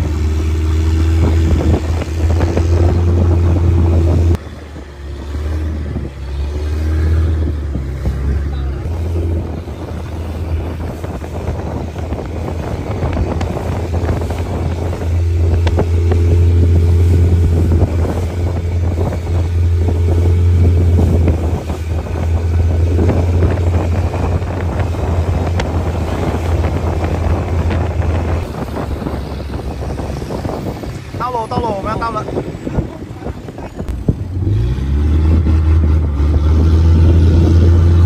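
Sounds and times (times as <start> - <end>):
motorboat engine humming: 0.0 - 38.0
wind on microphone: 0.0 - 38.0.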